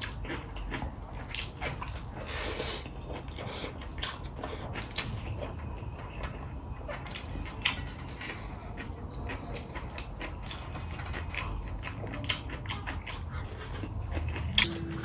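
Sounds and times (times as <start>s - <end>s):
chewing and mouth smacks: 0.0s - 15.0s.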